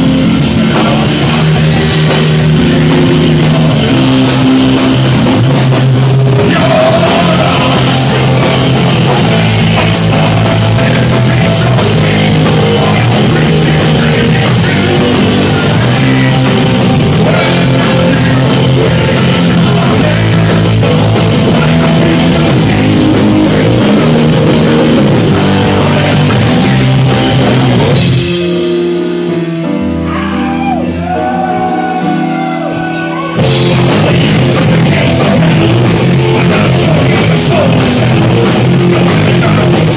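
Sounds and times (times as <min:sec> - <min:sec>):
drum kit: 0:00.0 - 0:39.9
electric guitar: 0:00.0 - 0:39.9
person singing into microphone: 0:06.4 - 0:27.0, 0:32.7 - 0:39.9.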